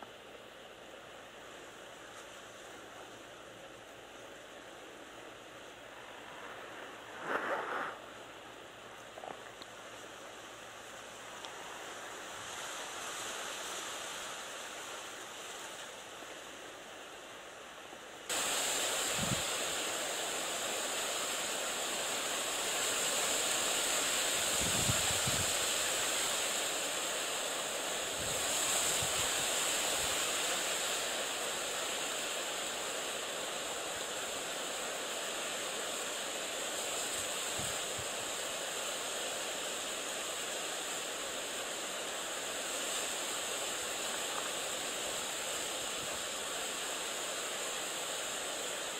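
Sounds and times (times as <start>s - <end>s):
wind buffeting microphone: 5.9s - 8.2s.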